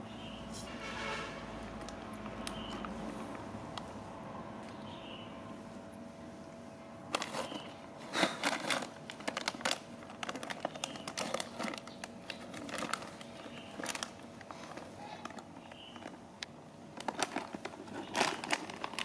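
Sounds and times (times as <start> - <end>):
foil packet crinkling: 7.1 - 19.0.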